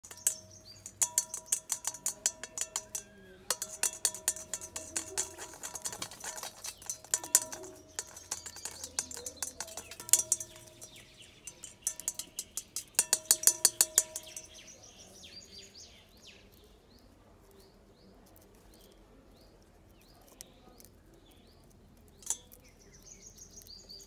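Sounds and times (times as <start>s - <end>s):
fast clicking beat: 0.0s - 14.5s.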